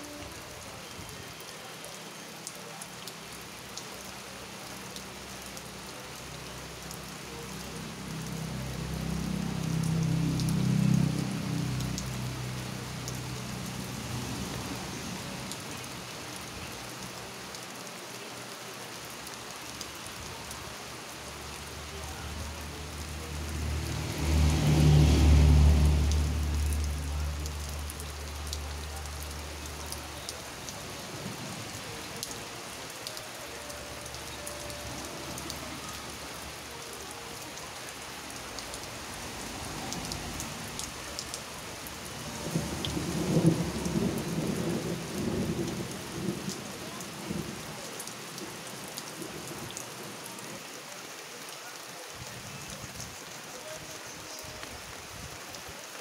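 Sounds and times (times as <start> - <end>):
rain falling on plants: 0.0 - 56.0
thunder rumbling: 42.2 - 46.6.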